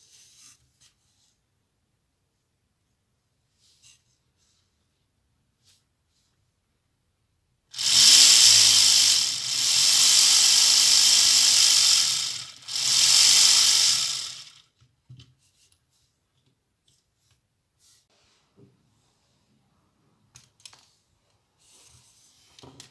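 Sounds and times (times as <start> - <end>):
toy plastic engine clattering: 7.8 - 14.6.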